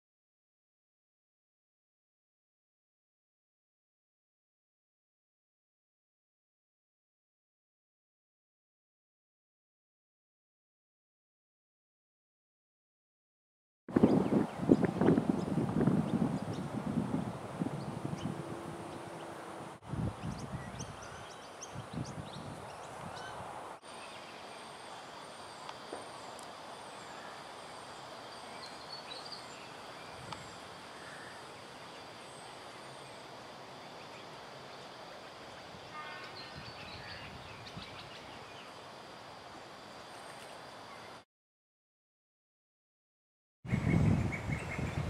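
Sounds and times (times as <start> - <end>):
river hiss and hum: 13.9 - 41.2
bird chirps: 28.4 - 31.4.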